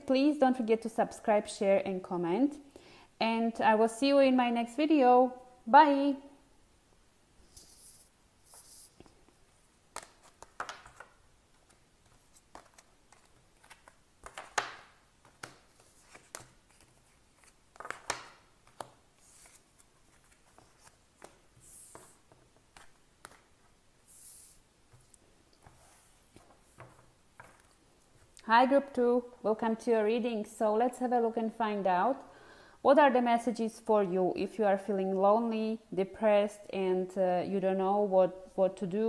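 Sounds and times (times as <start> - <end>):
cards sliding and tapping on table: 20.2 - 23.5, 24.2 - 27.8.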